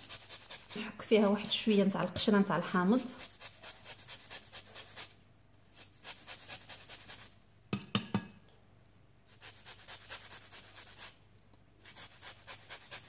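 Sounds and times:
lemon rasping on a grater: 0.0 - 5.1, 5.8 - 7.3, 9.4 - 11.2, 11.8 - 13.0.

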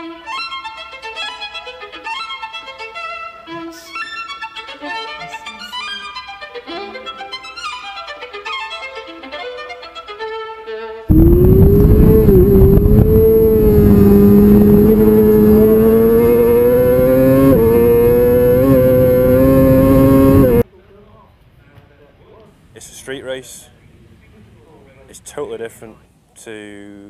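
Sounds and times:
motorcycle engine at high revs: 11.1 - 20.6.

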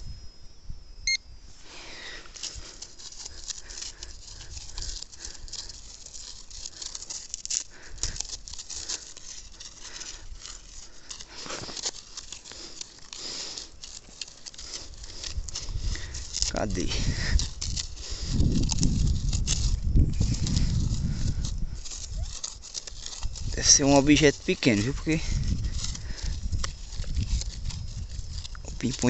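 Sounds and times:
short high beep: 1.0 - 1.2
plastic tip scraping through soil: 2.2 - 29.0.

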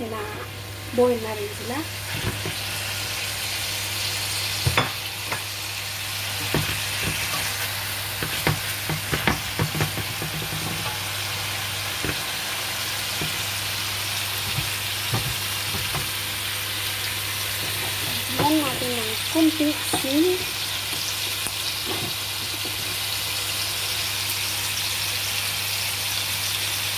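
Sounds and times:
vegetables sizzling in a wok: 0.0 - 26.9
utensil knocking against pan: 8.2 - 11.0.

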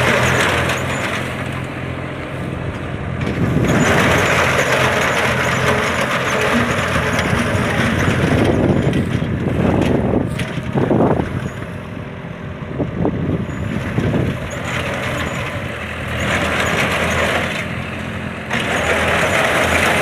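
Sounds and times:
tractor engine running: 0.0 - 20.0.

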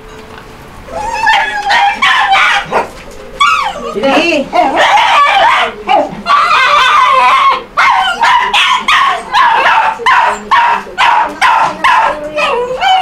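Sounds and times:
small dog barking: 1.3 - 3.0, 4.8 - 12.2.

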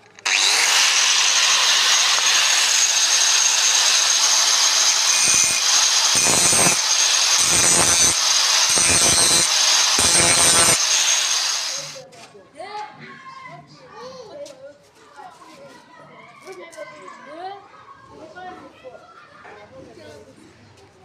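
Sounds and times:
angle grinder whining: 0.0 - 12.0
grinder disc grinding concrete: 0.0 - 12.0.

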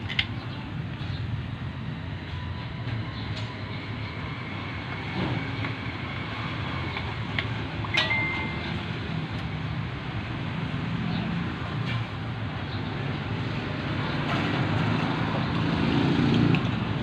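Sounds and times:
plastic pipe fittings clicking: 0.0 - 0.3.

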